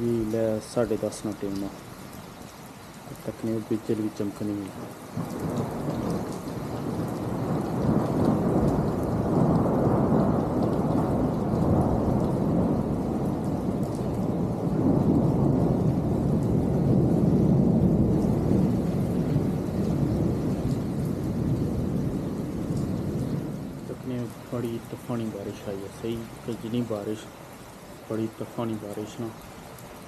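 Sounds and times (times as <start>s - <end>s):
heavy rain downpour: 0.0s - 30.0s
low thunder rumble: 4.7s - 27.4s.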